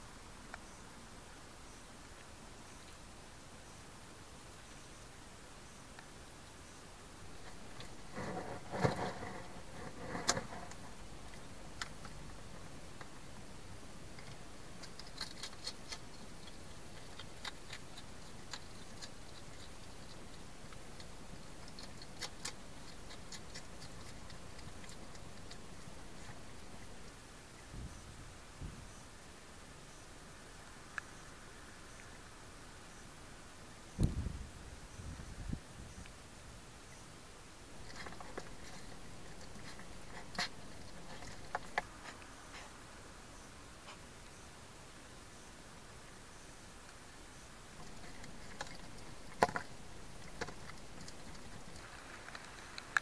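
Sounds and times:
steady hiss: 0.0 - 53.0
hedgehog chewing clicks: 7.4 - 27.2, 37.8 - 42.3, 47.8 - 53.0.

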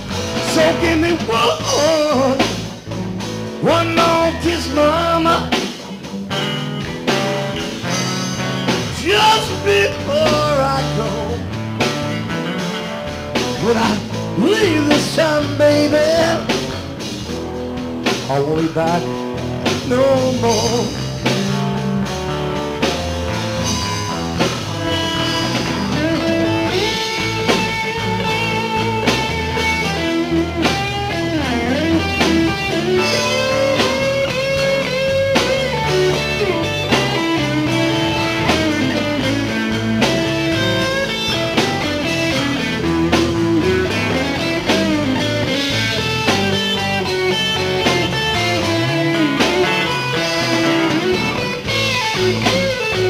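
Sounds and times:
electric guitar lead: 0.0 - 53.0
live blues-rock band: 0.0 - 53.0.

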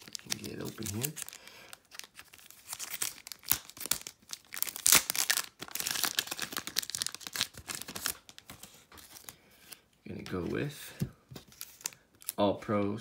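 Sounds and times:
wrapper tearing and crinkling: 0.0 - 9.3.

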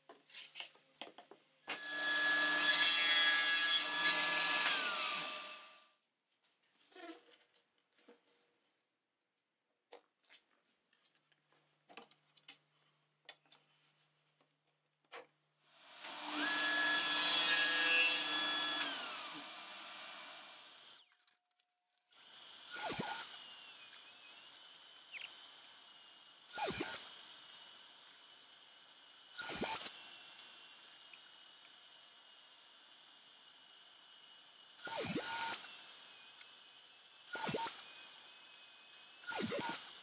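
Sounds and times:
table saw running and spinning down: 1.7 - 5.8, 15.9 - 21.0, 34.8 - 36.6.

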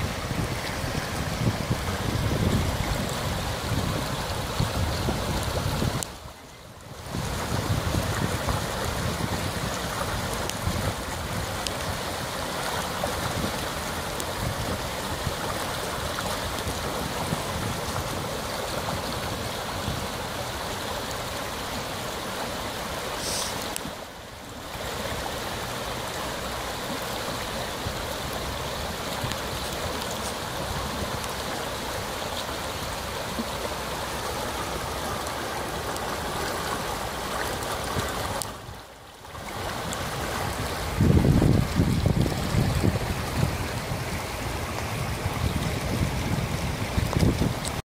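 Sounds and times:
river rushing over stones: 0.0 - 47.8.

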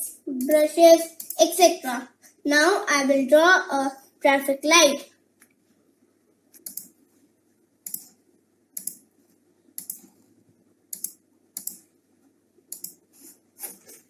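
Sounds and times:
faint room hum: 0.0 - 14.0
computer mouse clicks: 1.2 - 1.4, 6.5 - 7.0, 7.8 - 8.2, 8.8 - 9.1, 9.8 - 10.2, 10.9 - 11.9, 12.7 - 13.1.

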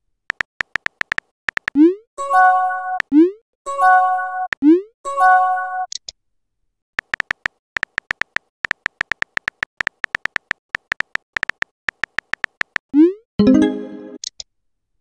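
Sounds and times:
keyboard tap clicks: 0.3 - 1.8, 7.0 - 12.9.

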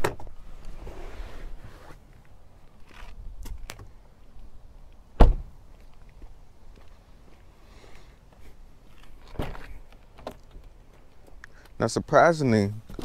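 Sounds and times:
car door shutting: 5.2 - 5.5.

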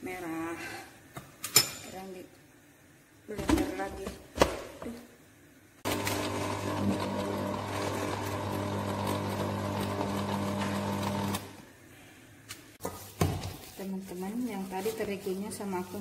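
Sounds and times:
blender motor running: 5.8 - 11.6.

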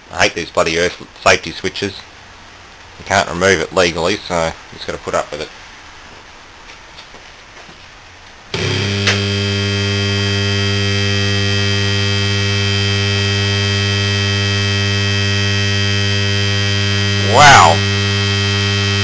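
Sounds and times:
motor electrical hum: 8.5 - 19.0
click: 9.0 - 9.3.

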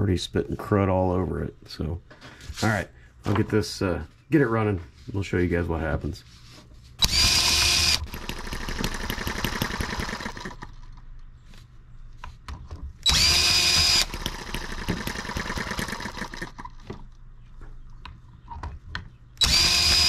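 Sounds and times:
cordless drill whining: 7.0 - 10.5, 13.0 - 16.5, 19.4 - 20.0.

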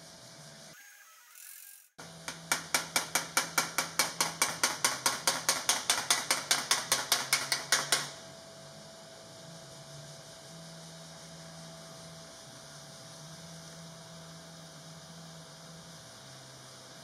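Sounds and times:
hammer ringing on sheet metal: 2.2 - 8.1.

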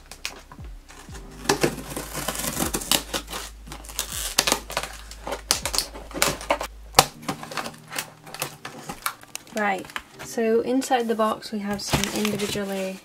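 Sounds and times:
scissors cutting packing tape: 0.1 - 10.1.

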